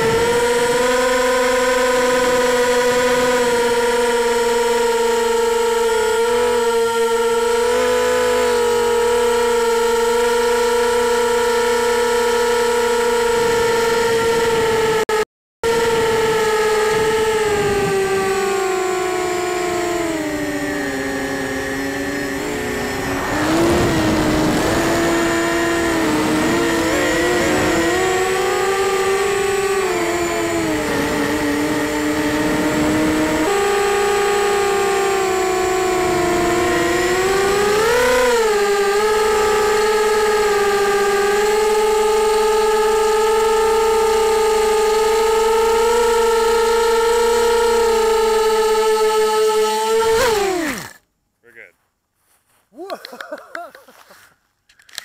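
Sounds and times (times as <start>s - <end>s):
quadcopter motors whining: 0.0s - 51.0s, 52.8s - 55.0s
wind noise: 15.8s - 18.3s, 20.2s - 33.9s.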